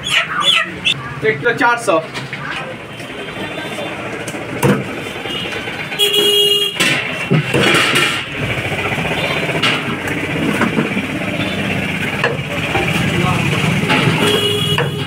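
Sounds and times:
street traffic: 0.0 - 15.0
vehicle horn honking: 2.9 - 4.0, 5.0 - 7.3, 9.0 - 9.6, 11.3 - 11.9, 13.9 - 15.0.

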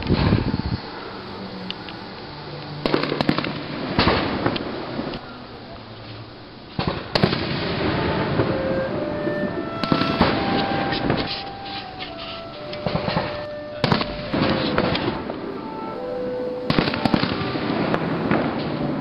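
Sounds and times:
fireworks crackling: 0.0 - 19.0
fireworks bangs: 2.7 - 5.2, 6.7 - 19.0.

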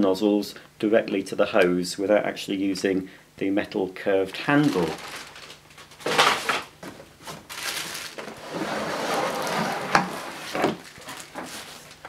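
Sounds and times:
plastic wrapping crinkling: 4.3 - 8.4, 10.3 - 12.0.

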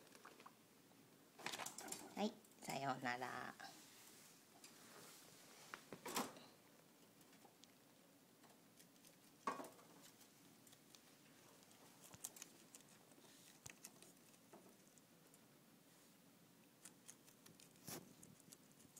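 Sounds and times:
guinea pig chewing lettuce: 6.8 - 15.7, 16.5 - 18.9.

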